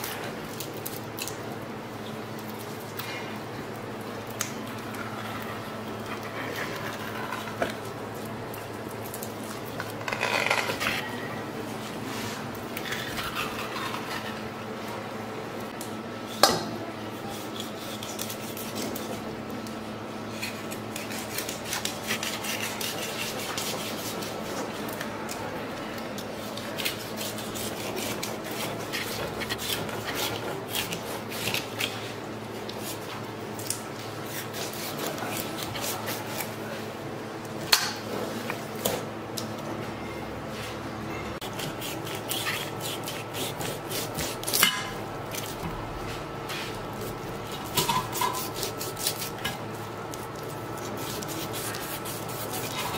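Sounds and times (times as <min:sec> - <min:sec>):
knife scraping and cutting fish: 0:04.8 - 0:08.3, 0:08.9 - 0:11.4, 0:12.0 - 0:14.6, 0:17.1 - 0:19.3, 0:20.3 - 0:25.0, 0:26.2 - 0:36.7, 0:41.4 - 0:52.9.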